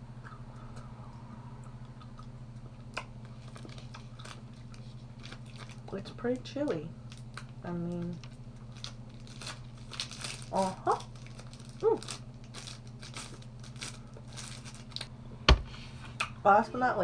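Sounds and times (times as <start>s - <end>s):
plastic wrapper crinkling: 3.3s - 6.4s, 7.0s - 15.1s.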